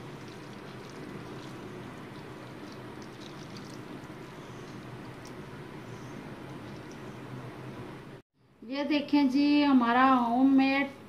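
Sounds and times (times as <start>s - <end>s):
low rushing hum: 0.0s - 8.6s.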